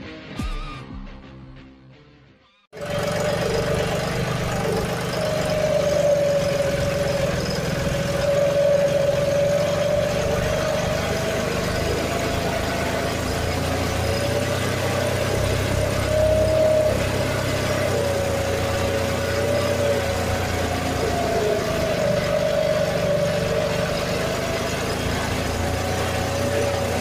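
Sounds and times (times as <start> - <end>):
steady mechanical whine: 2.8 - 27.0
tractor diesel engine running: 2.8 - 27.0.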